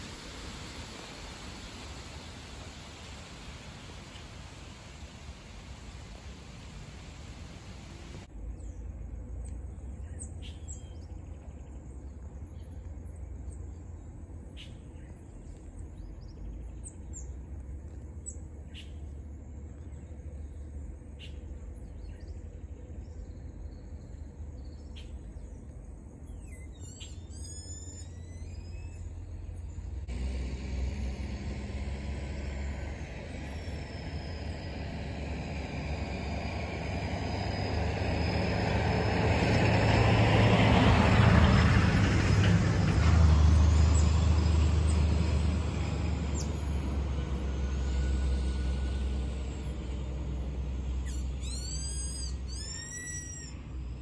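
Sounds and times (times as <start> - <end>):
motor vehicle noise: 0.0 - 54.0
birds chirping: 7.5 - 30.1, 49.5 - 54.0
falling whine: 28.0 - 53.9.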